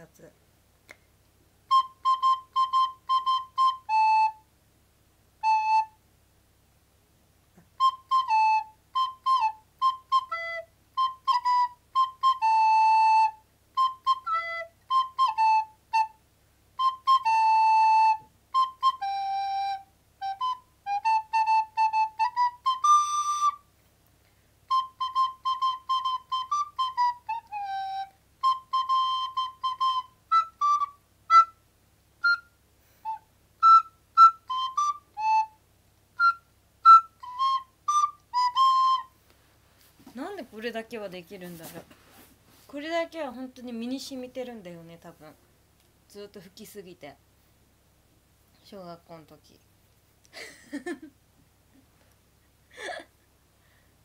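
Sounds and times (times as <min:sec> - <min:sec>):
soprano recorder playing: 0:01.7 - 0:04.5, 0:05.4 - 0:06.0, 0:07.6 - 0:16.2, 0:16.8 - 0:23.7, 0:24.7 - 0:31.6, 0:32.2 - 0:35.6, 0:36.2 - 0:39.2.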